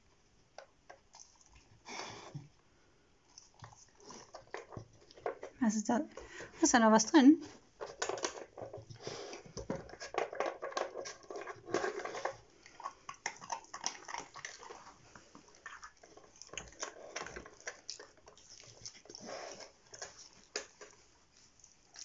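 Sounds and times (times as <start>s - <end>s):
dog biting and chewing: 7.9s - 22.0s.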